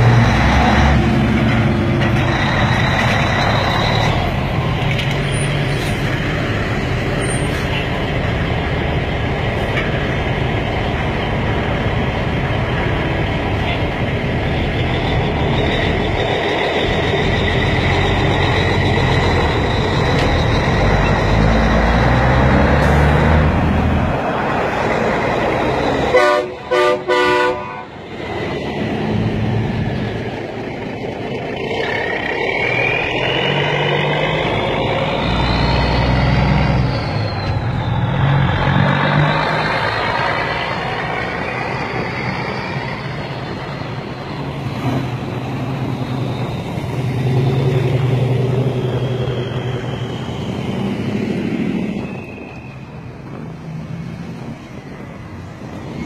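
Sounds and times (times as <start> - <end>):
diesel trucks pulling away: 0.0 - 56.0
truck horn honking: 26.0 - 28.0.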